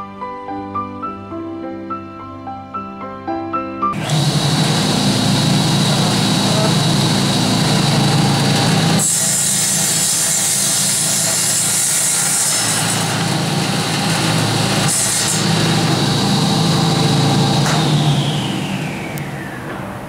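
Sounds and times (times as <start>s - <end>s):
saw blade cutting wooden sticks: 4.0s - 18.3s
saw motor humming and whining: 4.0s - 20.0s.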